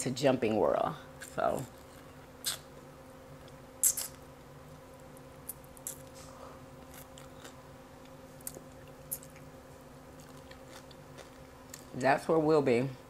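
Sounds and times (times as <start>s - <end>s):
crunchy bites and chewing: 1.2s - 2.7s, 5.0s - 12.0s.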